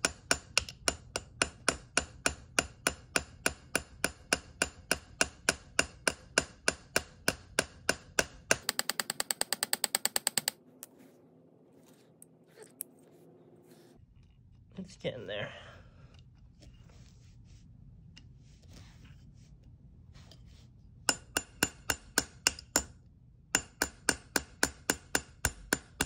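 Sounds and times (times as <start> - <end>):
hammer tapping on punch: 0.0 - 10.6, 21.1 - 22.9, 23.6 - 26.0.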